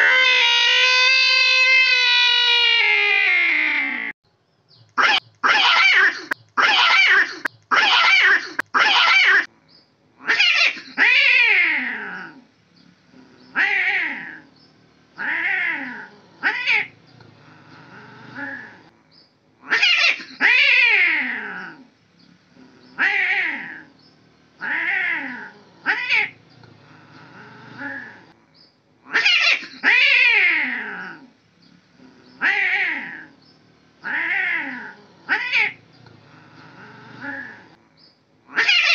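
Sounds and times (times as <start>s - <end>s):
cats screeching: 0.0s - 4.1s, 5.0s - 9.5s, 10.3s - 12.4s, 15.2s - 17.0s, 19.7s - 21.8s, 24.6s - 28.4s, 29.1s - 31.3s, 34.0s - 37.7s, 38.5s - 38.9s
cats yowling: 0.0s - 4.1s, 5.0s - 9.5s, 10.3s - 12.4s, 15.2s - 18.9s, 19.7s - 21.9s, 22.6s - 23.9s, 24.6s - 28.4s, 29.1s - 31.3s, 32.0s - 33.3s, 34.0s - 37.7s, 38.5s - 38.9s.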